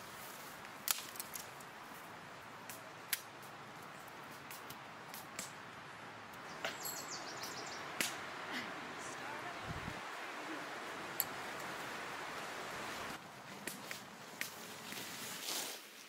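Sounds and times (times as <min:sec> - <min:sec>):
sticks cracking and snapping: 0:00.7 - 0:01.7, 0:02.6 - 0:03.3, 0:04.3 - 0:05.6.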